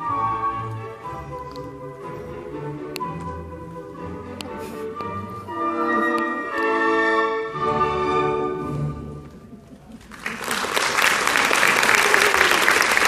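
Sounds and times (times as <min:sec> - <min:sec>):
orchestral music: 0:00.0 - 0:09.7
audience applause: 0:10.0 - 0:13.0.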